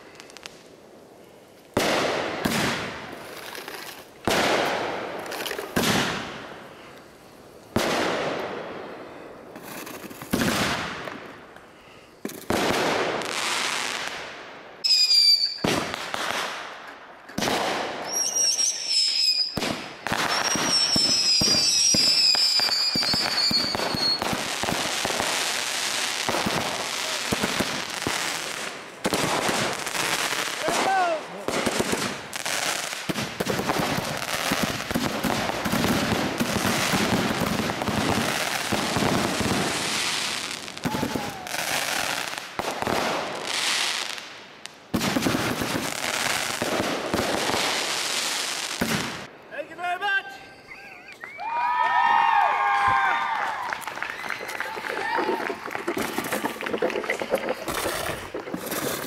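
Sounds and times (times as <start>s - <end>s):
firework crackling: 0.0s - 49.3s, 51.4s - 59.0s
firework falling whistles: 14.8s - 16.0s, 17.4s - 24.5s.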